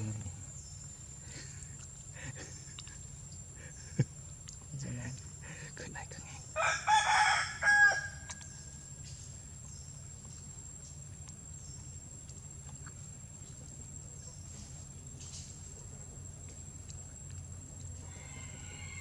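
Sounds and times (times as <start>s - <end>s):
insect chirring: 0.0s - 19.0s
low outdoor hum: 0.0s - 19.0s
rooster crowing: 6.6s - 8.4s, 18.0s - 19.0s.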